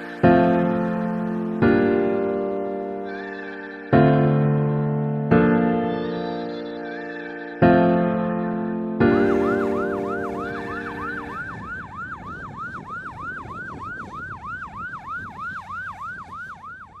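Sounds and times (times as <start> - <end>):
electronic siren yelping: 0.0 - 4.5, 9.1 - 17.0
piano chord: 0.0 - 11.6.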